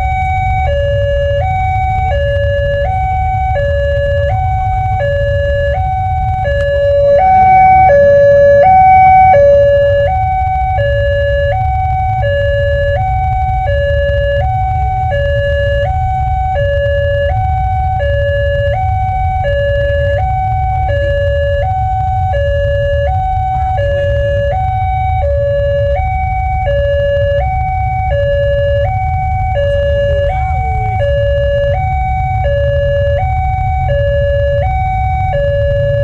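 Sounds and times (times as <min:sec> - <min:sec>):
two-tone crossing alarm: 0:00.0 - 0:36.0
low steady rumble: 0:01.2 - 0:18.8.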